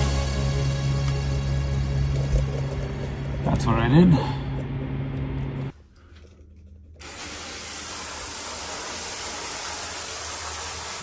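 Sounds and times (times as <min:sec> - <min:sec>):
running water hissing: 0:07.0 - 0:11.0.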